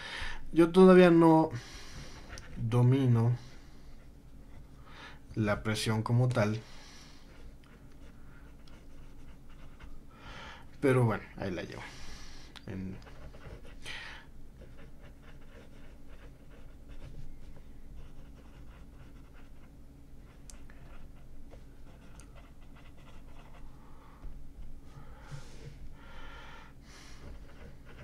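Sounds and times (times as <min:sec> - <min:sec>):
pen nib scratching on paper: 0:07.6 - 0:10.0, 0:14.6 - 0:23.6, 0:27.2 - 0:28.0.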